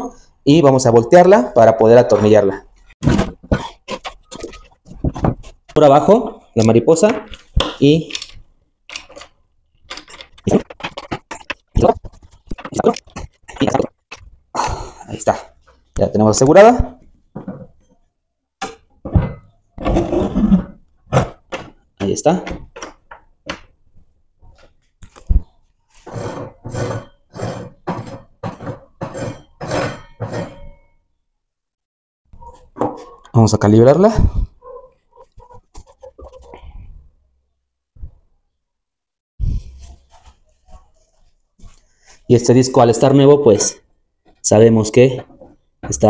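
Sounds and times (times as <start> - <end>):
screwdriver and fasteners clicking: 7.3 - 11.6.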